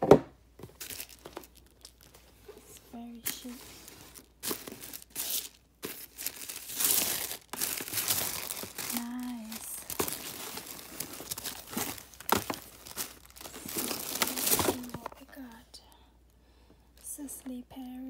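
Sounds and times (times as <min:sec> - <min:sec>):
paper and cardboard crinkling: 0:00.6 - 0:15.6
boxes knocking together: 0:09.9 - 0:15.1.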